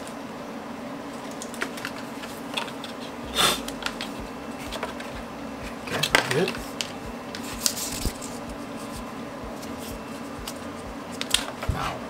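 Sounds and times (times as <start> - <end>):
steady low hum: 0.0 - 12.0
paper rustle: 5.9 - 9.0.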